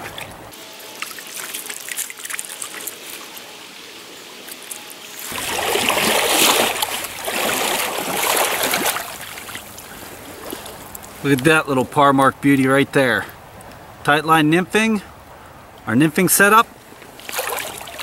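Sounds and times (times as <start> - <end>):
splashing in water: 0.0 - 11.4, 17.2 - 18.0
stream water running: 0.0 - 18.0.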